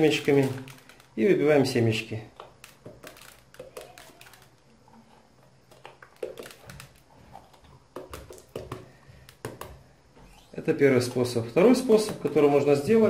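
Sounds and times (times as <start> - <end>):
hands tapping pepper over bowl: 2.4 - 4.5, 7.9 - 9.8.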